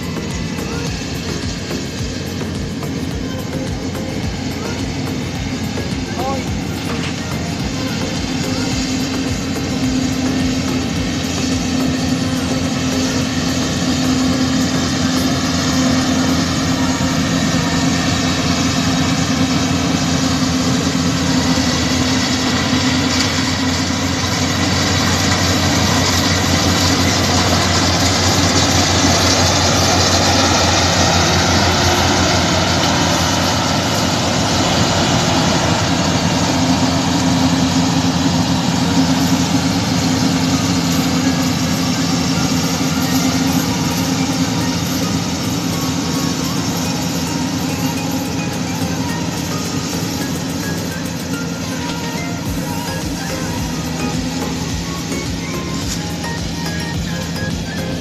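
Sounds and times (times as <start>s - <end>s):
harvester engine hum: 0.0s - 58.0s
mechanical whirring: 0.0s - 58.0s.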